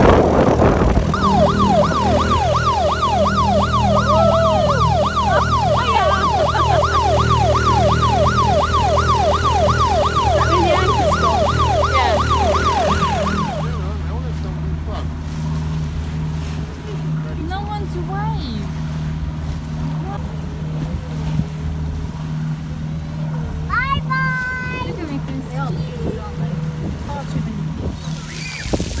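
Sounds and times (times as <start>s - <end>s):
electronic siren wail: 0.0s - 14.2s
small outboard motor running: 0.0s - 29.0s.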